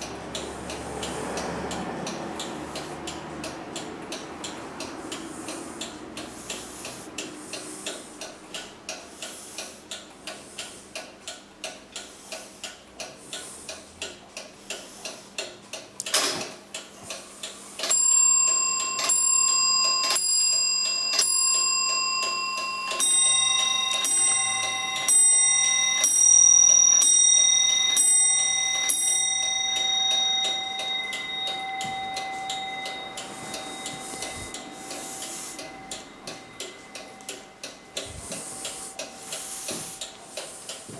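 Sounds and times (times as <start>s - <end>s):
clock click: 0.0s - 40.9s
clock ticking quickly: 0.0s - 40.9s
clock striking bells: 17.8s - 40.9s.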